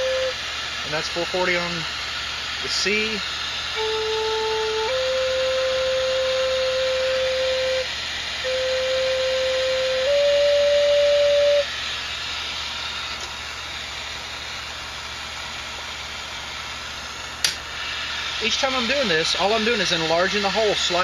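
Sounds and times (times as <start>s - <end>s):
flute playing held notes: 0.0s - 0.4s, 3.7s - 11.8s
steady hiss: 0.0s - 21.0s.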